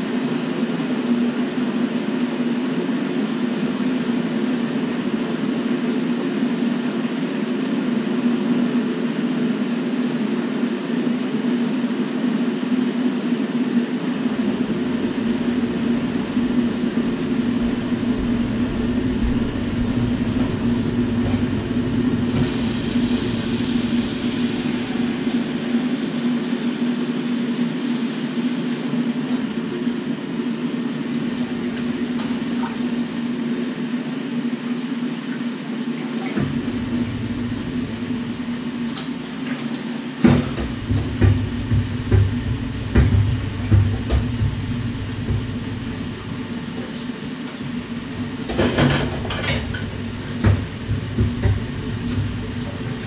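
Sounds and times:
steady low hum: 0:12.2 - 0:27.8, 0:28.9 - 0:35.8, 0:36.4 - 0:53.0
dishes knocking in sink: 0:40.2 - 0:47.0, 0:47.7 - 0:53.0
tap running: 0:40.2 - 0:53.0.

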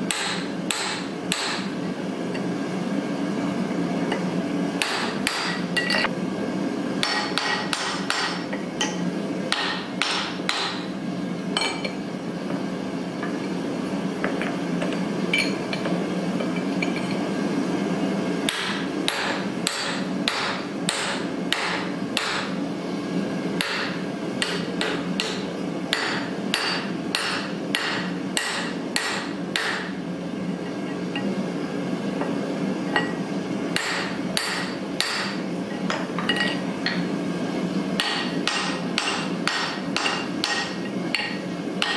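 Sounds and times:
hammer striking metal punch: 0:00.1 - 0:01.7, 0:07.0 - 0:10.8, 0:18.5 - 0:22.5, 0:23.6 - 0:29.9, 0:33.8 - 0:35.4, 0:38.0 - 0:41.9.

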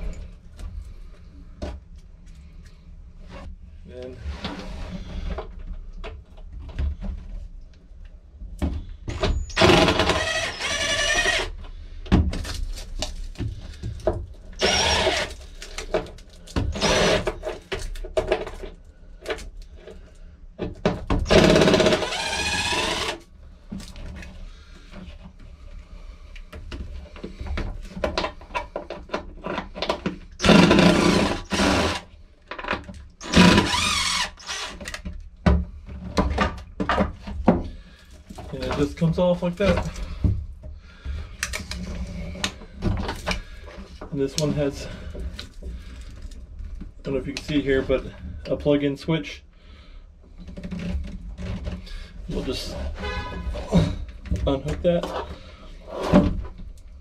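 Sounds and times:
cordless drill whining: 0:09.4 - 0:11.6, 0:14.6 - 0:15.4, 0:16.7 - 0:17.3, 0:21.3 - 0:23.2, 0:30.4 - 0:32.0, 0:33.2 - 0:35.0.

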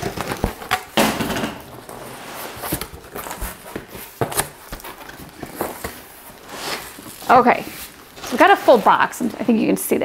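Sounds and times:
cardboard knocks and scrapes: 0:01.6 - 0:09.5
cardboard rustle: 0:01.6 - 0:10.0.

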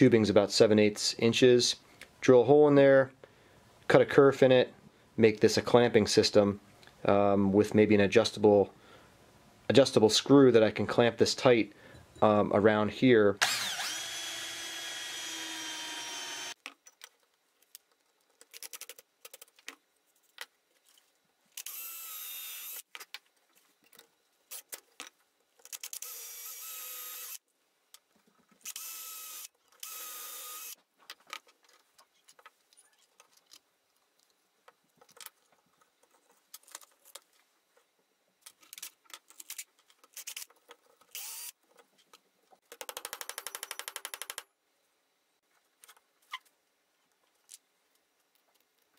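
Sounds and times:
cordless drill boring into wood: 0:13.4 - 0:16.6, 0:21.6 - 0:22.8, 0:26.0 - 0:27.4, 0:28.7 - 0:30.8, 0:41.1 - 0:41.5
clicks and knocks of tools handled: 0:31.0 - 0:37.4.

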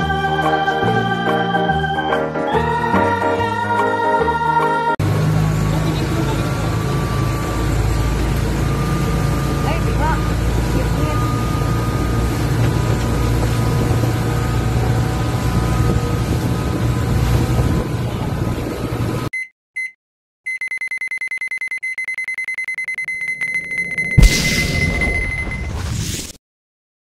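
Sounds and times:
boat engine drone: 0:00.0 - 0:19.3
wind and water rush: 0:10.3 - 0:19.2
electronic beeps: 0:19.4 - 0:26.0
loud hit with whoosh: 0:24.2 - 0:26.4.

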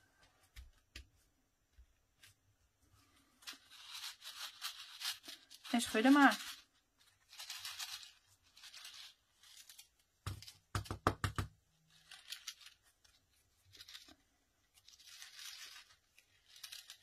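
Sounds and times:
glitter rattling in shaker: 0:03.4 - 0:10.5, 0:11.9 - 0:17.0.

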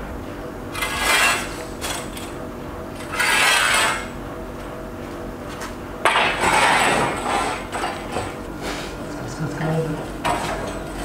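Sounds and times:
steel pipe scraping on concrete: 0:00.8 - 0:02.1, 0:03.0 - 0:04.1.

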